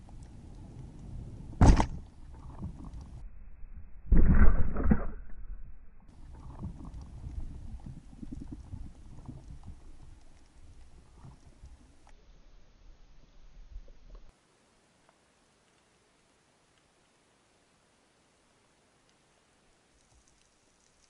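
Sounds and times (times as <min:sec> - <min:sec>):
underwater crackling: 0:00.0 - 0:03.2, 0:06.1 - 0:12.2, 0:20.0 - 0:21.0
low water rumble: 0:00.0 - 0:14.3
underwater speargun shot thud: 0:01.6 - 0:02.0.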